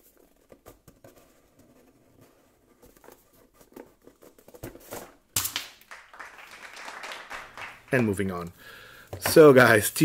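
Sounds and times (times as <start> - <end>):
faint scraping and rubbing: 0.0 - 5.0.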